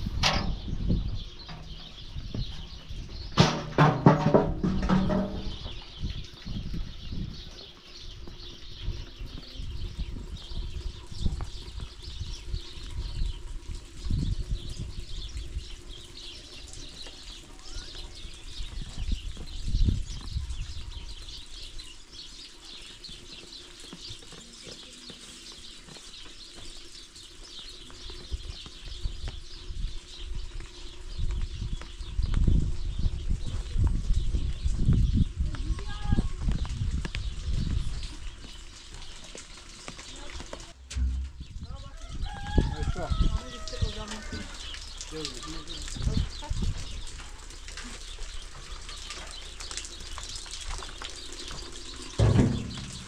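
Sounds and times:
low rumbles and thumps: 0:00.0 - 0:07.4, 0:40.7 - 0:42.8, 0:52.0 - 0:53.0
small birds chirping: 0:00.0 - 0:53.0.

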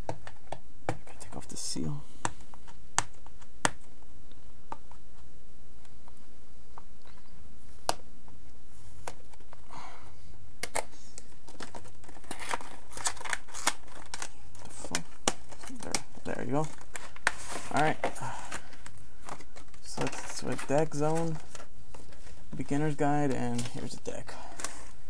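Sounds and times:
low steady hum: 0:00.0 - 0:25.0
plastic seal peeling: 0:10.6 - 0:21.6
wrapper crinkling: 0:11.3 - 0:25.0.

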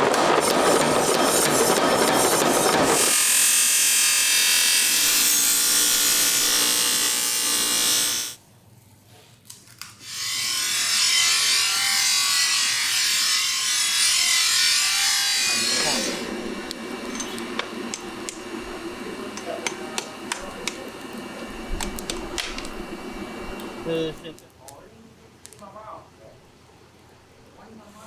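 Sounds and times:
power hammer pounding steel: 0:00.0 - 0:07.7, 0:19.3 - 0:20.9.

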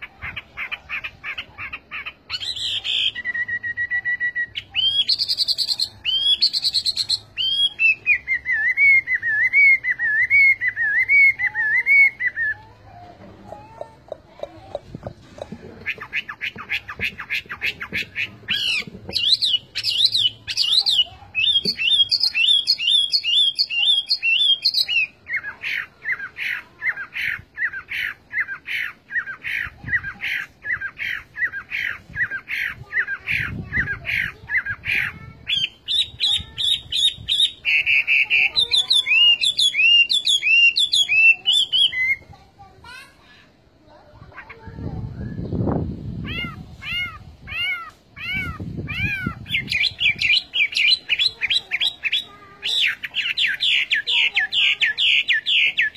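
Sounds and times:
bird singing whistled notes: 0:02.3 - 0:12.6, 0:35.5 - 0:42.2.

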